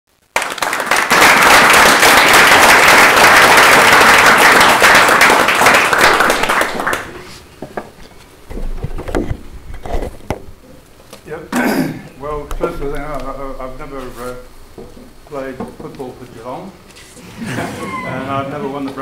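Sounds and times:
audience applauding: 0.3 - 7.4.

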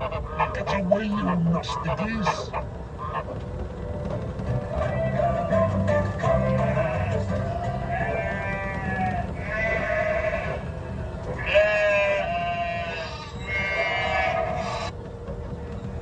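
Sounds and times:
sheep bleating: 6.6 - 10.7, 11.4 - 14.9.

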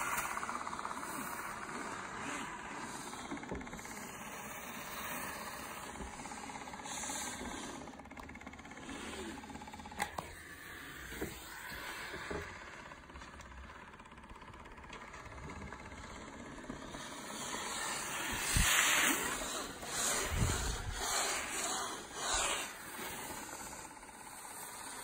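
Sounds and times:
steam hissing: 0.0 - 8.0, 16.1 - 25.0
steamer pump buzzing: 0.0 - 25.0.

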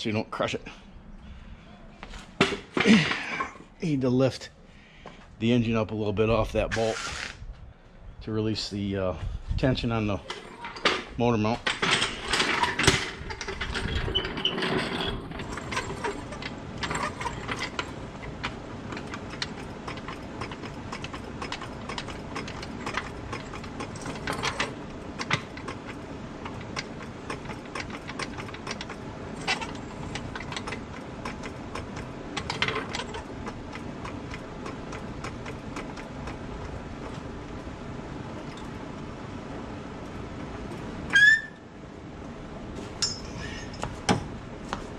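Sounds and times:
floor jack clicking and creaking: 10.2 - 36.4
knocks and clatter: 10.3 - 37.3.

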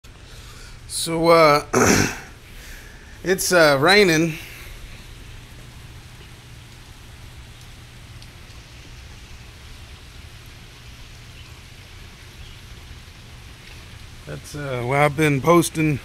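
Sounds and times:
steady rain hiss: 0.0 - 16.0
raindrops ticking: 0.1 - 16.0.

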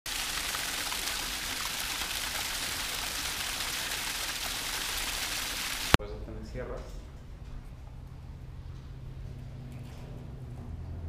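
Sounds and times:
water hissing: 0.1 - 6.0.

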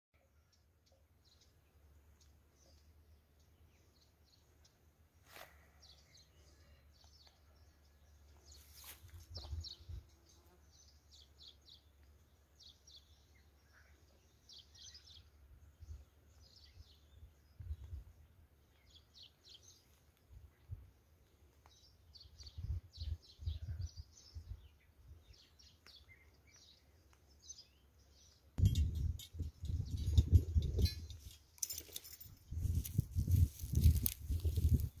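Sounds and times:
small birds chirping: 0.2 - 35.0
wind rumble on microphone: 16.8 - 18.3, 22.4 - 25.4, 28.6 - 31.3, 32.2 - 35.0.

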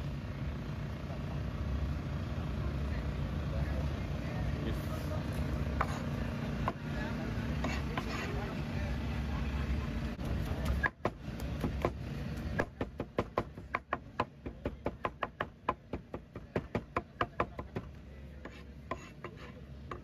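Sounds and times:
market crowd noise: 0.0 - 20.0
cleaver chopping on cutting board: 10.6 - 20.0.

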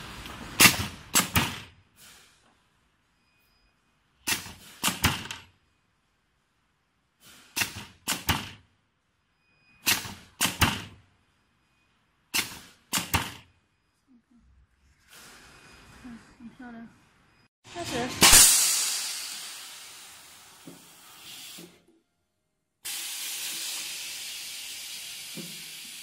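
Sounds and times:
pneumatic machine clacking: 0.6 - 2.3, 4.2 - 5.4, 7.2 - 8.6, 9.8 - 11.0, 12.3 - 13.4.

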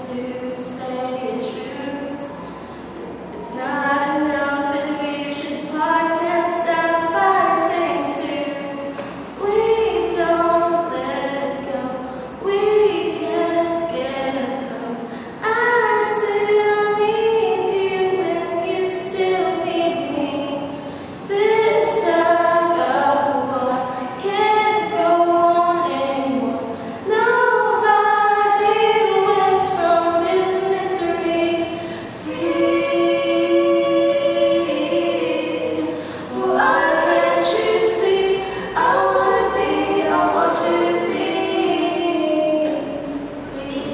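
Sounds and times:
two women singing: 0.0 - 2.6, 3.3 - 43.9.

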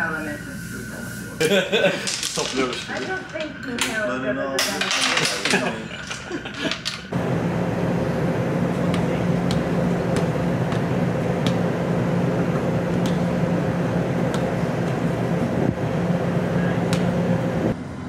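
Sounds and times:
ship machinery humming: 0.0 - 18.0.

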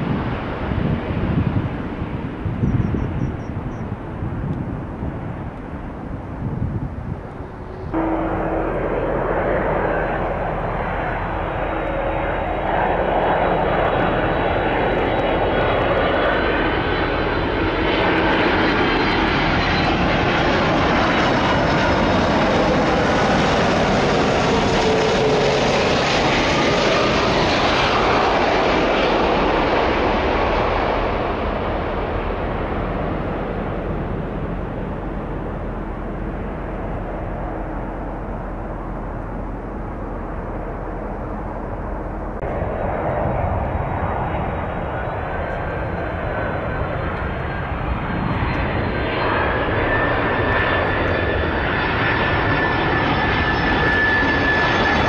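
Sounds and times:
jet airliner flying past: 0.0 - 55.0.

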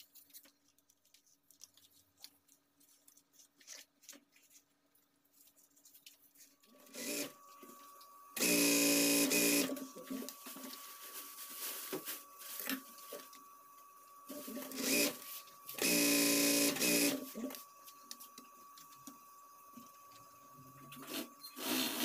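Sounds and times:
sewing machine stitching: 15.8 - 17.2, 21.1 - 22.0.

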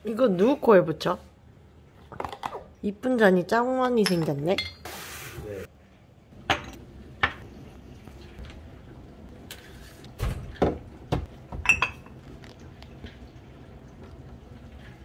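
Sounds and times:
glass bottles knocking: 11.6 - 12.1.

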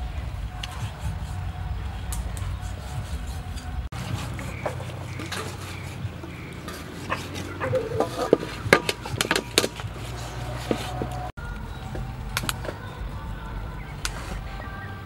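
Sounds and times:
colander clinking against metal bowl: 4.0 - 9.8.

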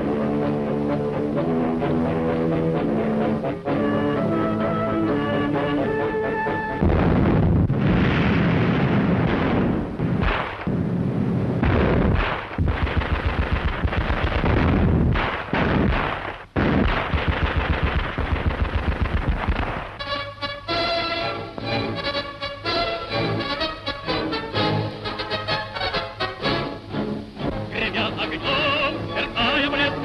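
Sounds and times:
artillery booms and explosions: 6.6 - 20.2
machine-gun fire: 6.8 - 20.0.

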